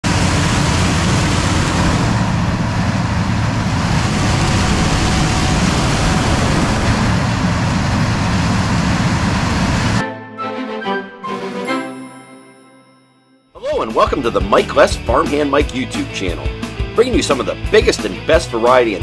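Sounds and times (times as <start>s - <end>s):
combine harvester machinery: 0.0s - 10.0s.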